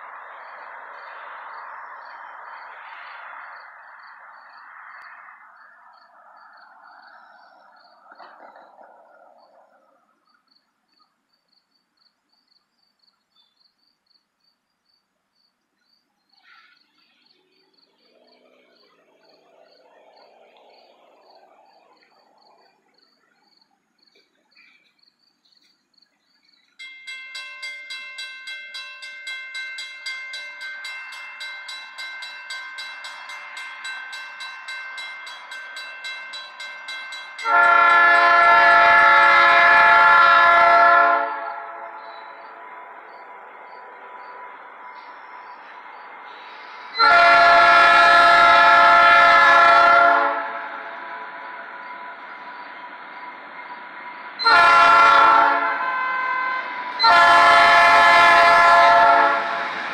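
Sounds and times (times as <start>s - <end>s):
railroad crossing bell ringing: 26.7s - 59.9s
diesel locomotive horn: 35.0s - 42.4s, 46.9s - 51.1s, 54.4s - 59.9s.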